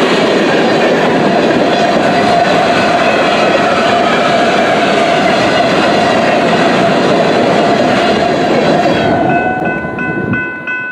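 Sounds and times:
train wheels rumbling on rail: 0.0 - 10.9
steady high tones: 8.6 - 10.9.

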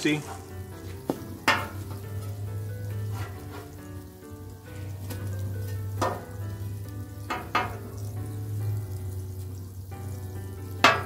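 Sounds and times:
food sizzling on a griddle: 0.0 - 11.0
light instrumental music: 0.0 - 11.0
metal spatula clacking on griddle: 1.1 - 2.0, 6.0 - 6.3, 7.3 - 7.9, 10.8 - 11.0.

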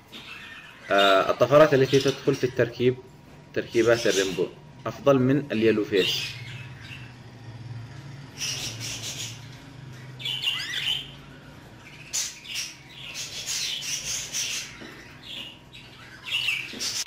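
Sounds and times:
budgerigar chirping: 5.8 - 7.2, 8.2 - 17.0.

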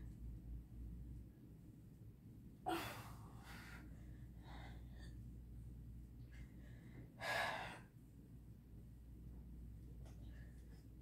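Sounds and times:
woman breathing hard: 2.7 - 5.4, 6.3 - 8.0.

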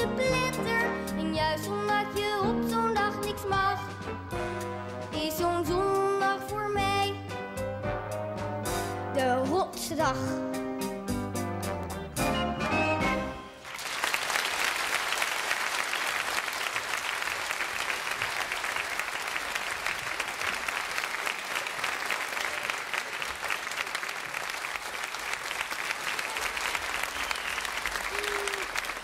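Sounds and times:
children clapping: 13.6 - 29.0.

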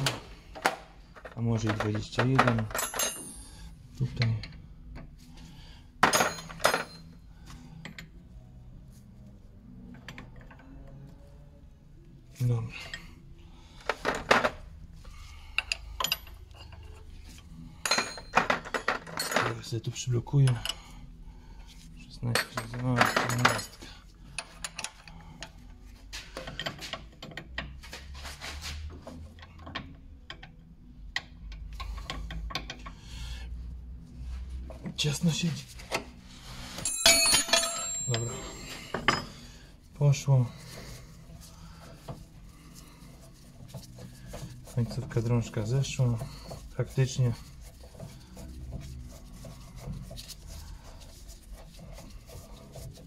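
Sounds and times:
spanner clanking on metal: 36.8 - 39.4.

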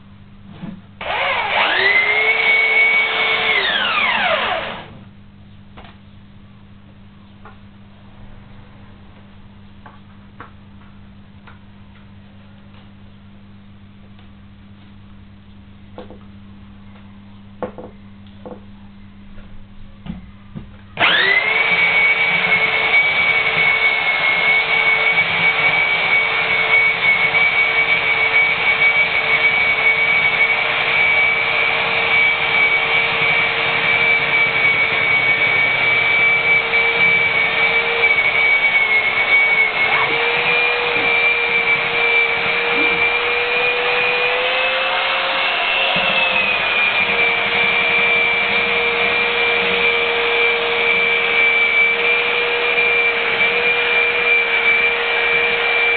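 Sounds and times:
belt sander sanding wood: 21.0 - 55.9.

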